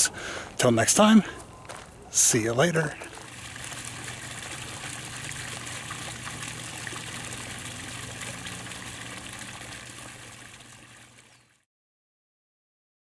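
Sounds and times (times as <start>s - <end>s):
water trickling: 2.3s - 11.6s.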